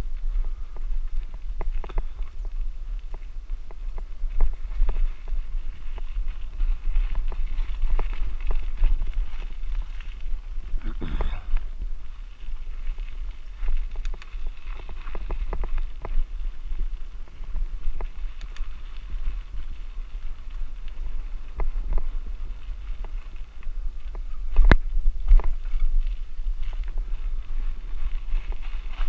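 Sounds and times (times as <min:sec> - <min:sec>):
bicycle rattling and clicking: 0:00.0 - 0:29.0
wind rumble on microphone: 0:00.0 - 0:29.0.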